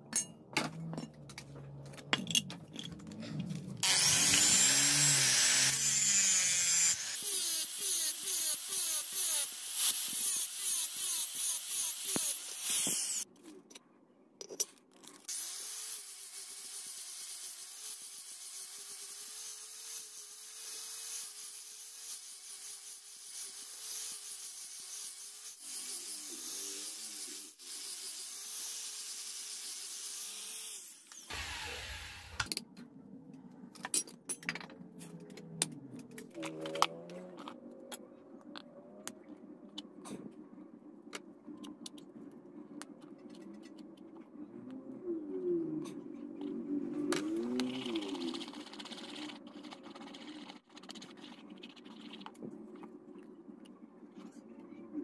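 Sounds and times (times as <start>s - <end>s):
angle grinder sanding metal: 3.8s - 13.2s
clicks and handling noise: 32.4s - 44.8s.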